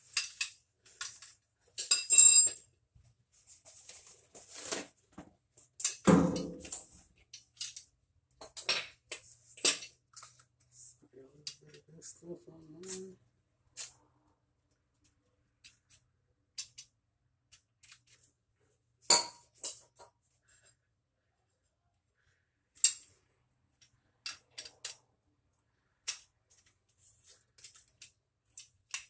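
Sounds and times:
metallic clicks and clinks: 0:00.0 - 0:02.6, 0:06.6 - 0:10.5, 0:23.8 - 0:25.1.

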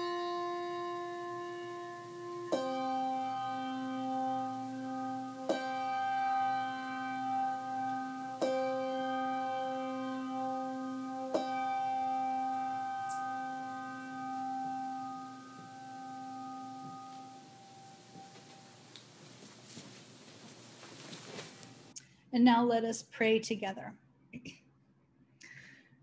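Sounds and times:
ringing struck note: 0:00.0 - 0:18.8.

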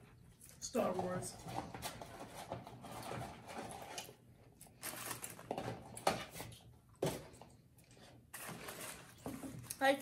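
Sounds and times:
cardboard and paper wrappers handled: 0:08.3 - 0:10.0.

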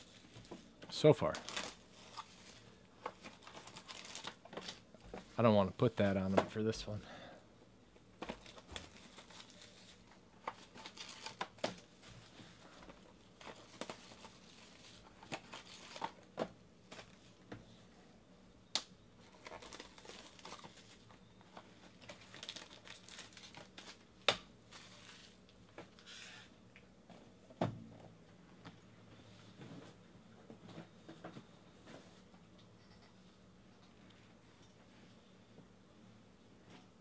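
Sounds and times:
plastic shrink wrap crinkling: 0:01.3 - 0:05.2, 0:08.2 - 0:12.3, 0:13.4 - 0:16.2, 0:19.2 - 0:24.0, 0:24.7 - 0:25.4.

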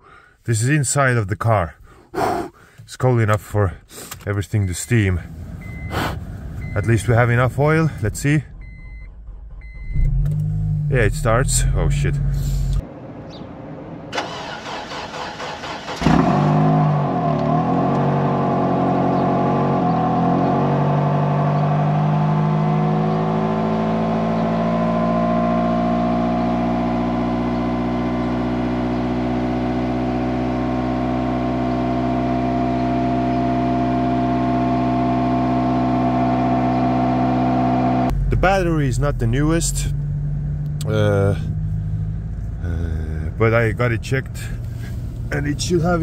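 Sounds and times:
car engine revving and idling: 0:04.0 - 0:46.0
engine starter cranking: 0:08.5 - 0:10.6, 0:14.2 - 0:16.3.

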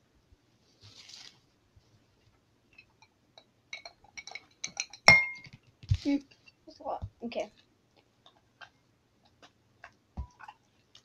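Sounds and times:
glass jar clinking on glass bowl: 0:03.7 - 0:05.5.

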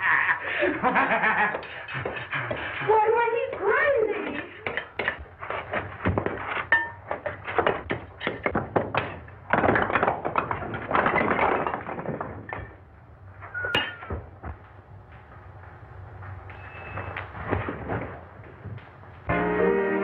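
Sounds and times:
bricks knocking and thudding: 0:03.5 - 0:14.6
bricks tumbling down: 0:04.2 - 0:14.8, 0:17.0 - 0:19.1.

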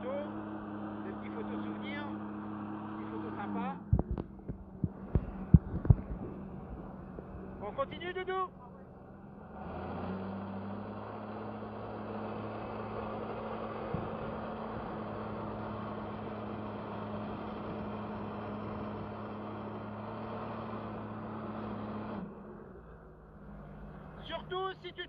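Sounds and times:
jet ski engine droning: 0:00.0 - 0:09.0, 0:11.4 - 0:20.2.

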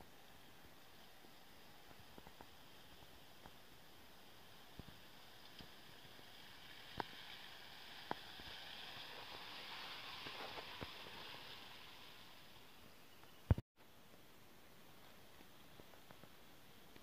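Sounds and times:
vehicle driving through mud: 0:04.4 - 0:12.5.

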